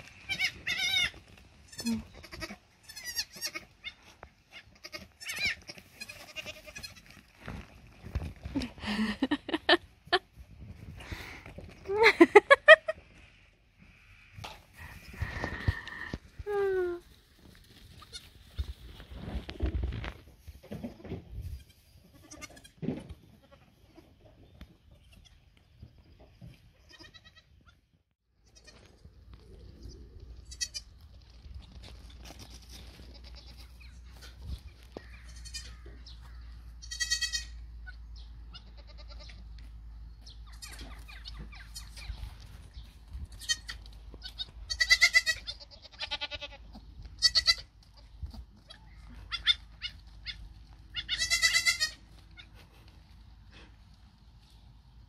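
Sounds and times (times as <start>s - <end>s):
goats bleating: 0.0s - 7.2s, 21.6s - 24.1s, 26.8s - 27.5s, 35.0s - 36.0s, 36.8s - 39.4s, 43.4s - 52.6s.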